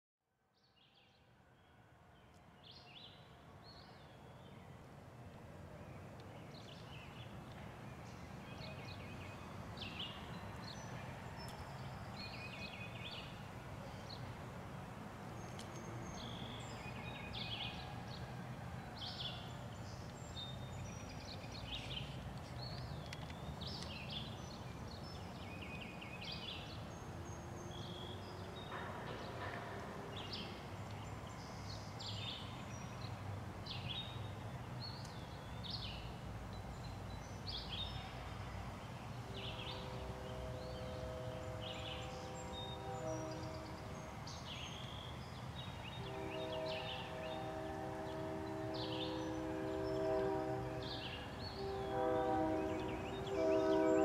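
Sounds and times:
birds chirping and trilling: 0:39.3 - 0:54.0.

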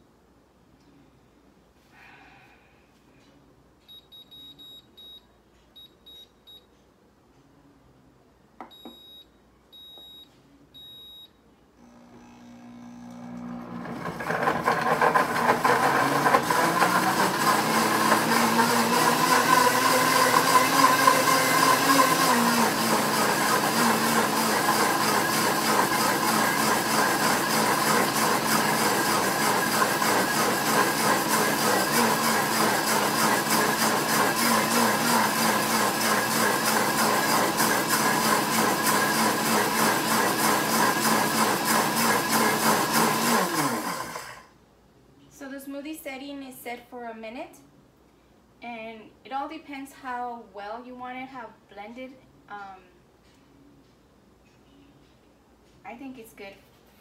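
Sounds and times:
blender motor running: 0:11.8 - 0:44.4.

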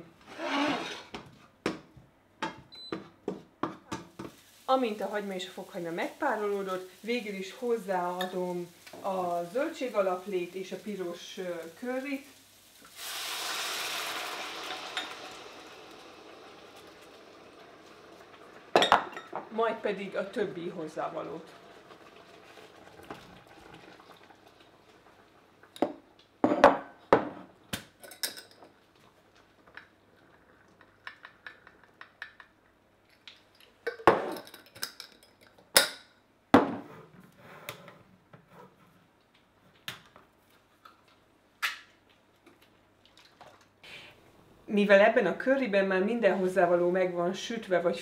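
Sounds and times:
utensils clinking against pan: 0:28.0 - 0:28.7.

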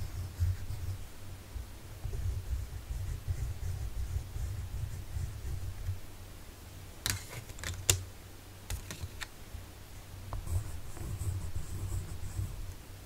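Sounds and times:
pencil scratching on paper: 0:00.0 - 0:01.0, 0:02.0 - 0:05.9, 0:10.4 - 0:12.6
pencils clicking and tapping: 0:07.0 - 0:08.0, 0:08.7 - 0:09.3.

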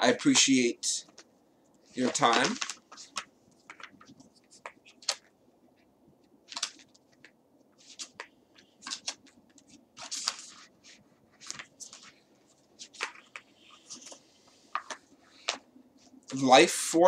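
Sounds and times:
cards being shuffled: 0:02.0 - 0:05.3, 0:06.5 - 0:16.4.

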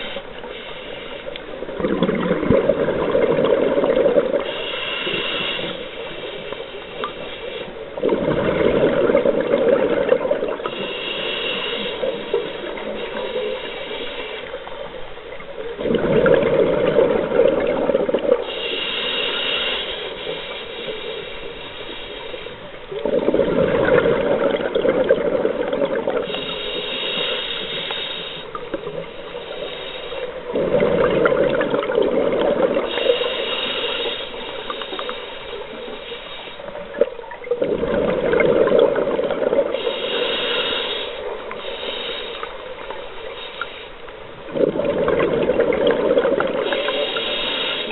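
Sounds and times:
regulator breathing hiss with whistle: 0:00.0 - 0:01.4, 0:04.4 - 0:08.0, 0:10.6 - 0:14.9, 0:18.4 - 0:22.8, 0:26.3 - 0:30.5, 0:32.9 - 0:36.9, 0:39.8 - 0:44.2, 0:46.6 - 0:47.9
exhaled bubbles gurgling: 0:01.4 - 0:43.5, 0:44.2 - 0:47.9.

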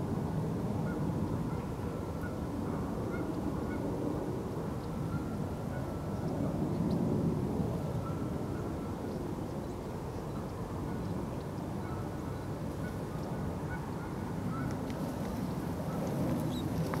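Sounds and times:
distant bird calls: 0:15.4 - 0:17.0.

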